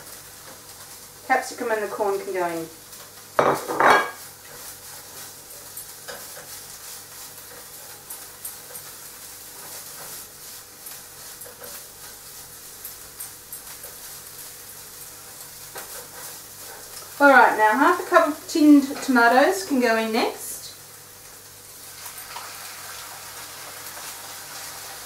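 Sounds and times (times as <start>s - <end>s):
meat and vegetables sizzling in a pan: 0.0s - 25.0s
utensil stirring and knocking pan: 3.0s - 19.3s.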